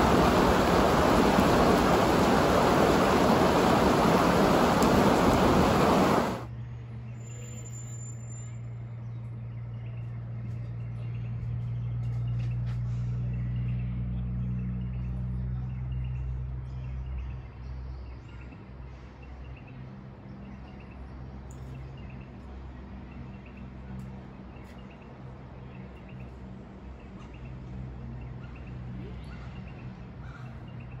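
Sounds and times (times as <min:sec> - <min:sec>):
small birds chirping: 0:00.0 - 0:06.4
low engine hum: 0:00.0 - 0:07.2, 0:08.5 - 0:20.0.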